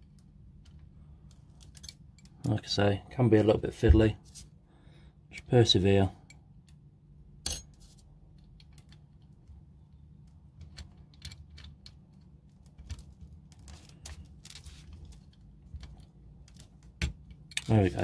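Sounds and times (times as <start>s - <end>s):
small metal parts clicking: 0.1s - 2.4s.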